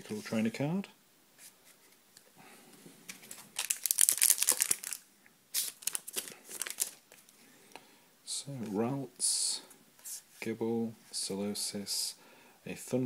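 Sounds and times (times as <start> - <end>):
foil wrapper crinkling: 3.1 - 7.1.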